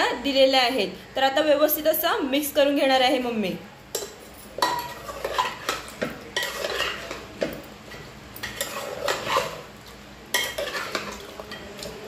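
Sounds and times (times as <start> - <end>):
ladle scraping metal pot: 4.6 - 7.4, 8.4 - 9.7, 10.3 - 12.0.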